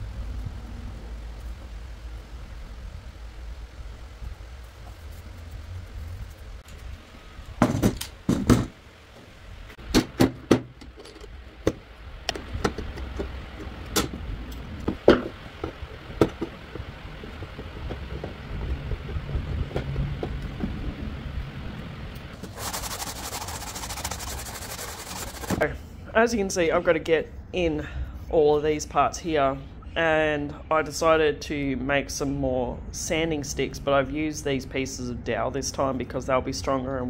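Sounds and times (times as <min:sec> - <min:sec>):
hand sanding wood: 0:22.4 - 0:25.8.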